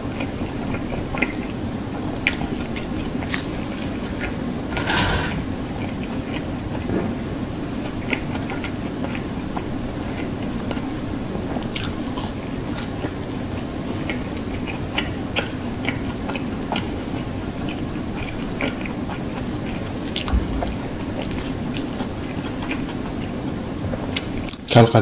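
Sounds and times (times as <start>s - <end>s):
chewing fries: 0.0s - 25.0s
low bump: 20.2s - 21.9s.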